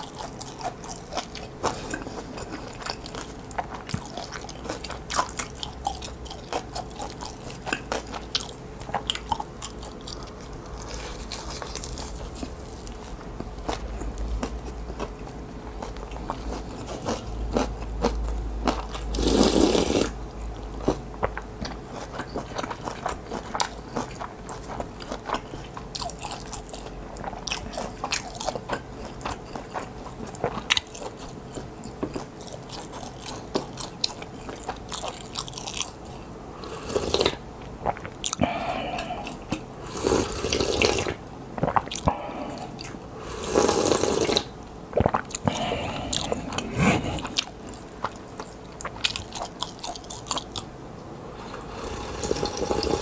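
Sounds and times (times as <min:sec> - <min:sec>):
chewing and mouth clicks: 0:00.0 - 0:19.4, 0:20.0 - 0:36.2, 0:37.1 - 0:39.7, 0:44.2 - 0:50.7
noodle slurping: 0:51.4 - 0:53.0.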